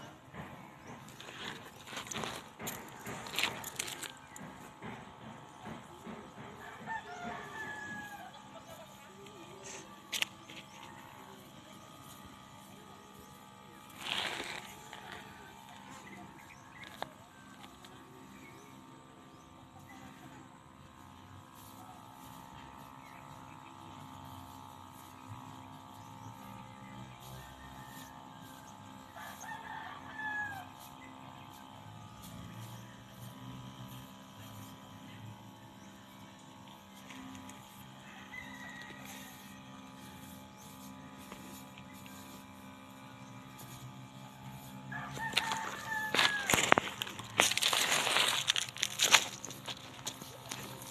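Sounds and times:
small engine humming and whining: 0.0 - 50.9
rooster crowing: 6.6 - 8.7, 29.2 - 30.8, 38.0 - 39.6, 44.9 - 48.3.

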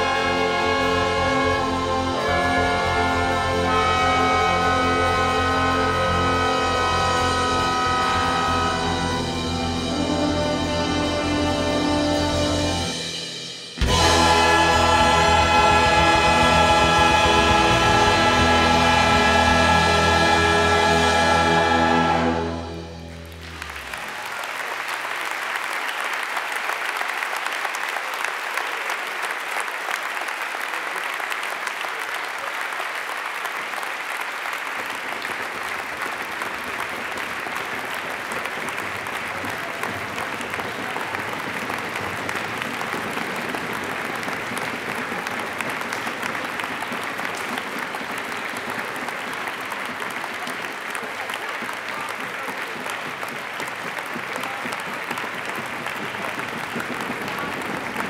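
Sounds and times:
audience applauding: 0.0 - 12.7, 13.8 - 58.0
held musical chord: 0.0 - 24.0.

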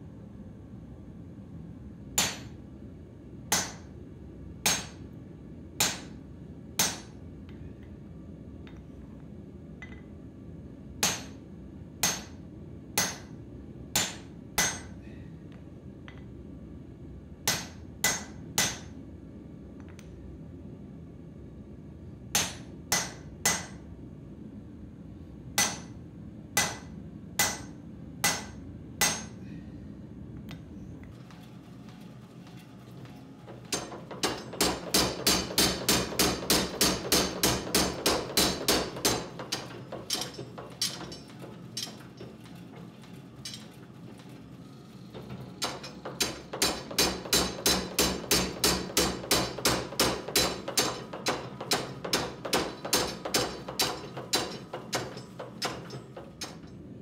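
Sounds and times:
power hammer pounding steel: 2.2 - 2.5, 3.5 - 3.9, 4.7 - 5.0, 5.8 - 6.2, 6.8 - 7.2, 12.0 - 12.4, 14.0 - 14.9, 26.6 - 29.4, 33.5 - 44.4, 45.1 - 56.8
hand hammer striking tool on anvil: 3.5 - 3.9, 4.7 - 5.0, 5.8 - 6.1, 6.8 - 7.1, 12.0 - 12.4, 14.0 - 14.9, 17.5 - 18.9, 26.6 - 29.4, 33.6 - 42.5, 45.6 - 56.8.

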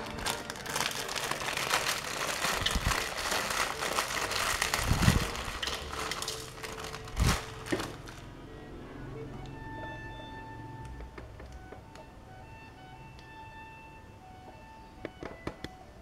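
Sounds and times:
plastic wrapper crinkling: 0.0 - 8.3.

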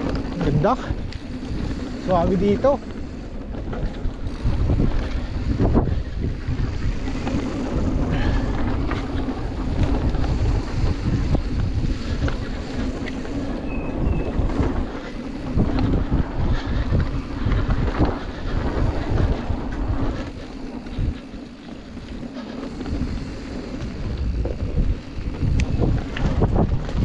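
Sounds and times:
bike rattling over bumps: 0.0 - 27.0
wind buffeting microphone: 0.0 - 27.0
tyres crunching on gravel: 6.6 - 27.0.

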